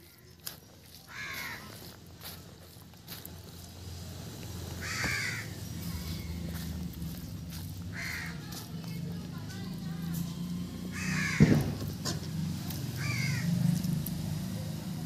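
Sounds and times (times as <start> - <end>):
crow cawing: 1.1 - 1.8, 4.8 - 6.3, 7.9 - 8.5, 10.9 - 11.7, 13.0 - 13.6.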